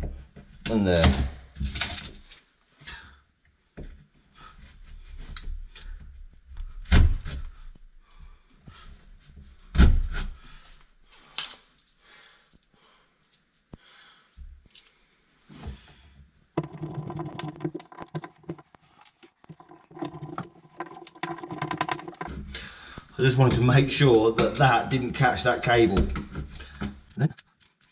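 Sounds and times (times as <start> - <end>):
small clicks and rustling: 16.6 - 22.3.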